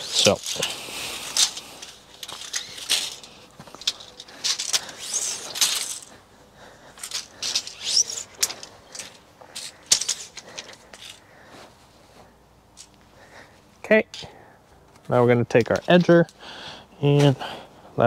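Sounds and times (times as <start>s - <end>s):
tape measure blade zipping out: 0.0s - 6.2s, 7.0s - 10.7s
tape measure clicks and rattles: 0.0s - 6.2s, 6.9s - 11.2s.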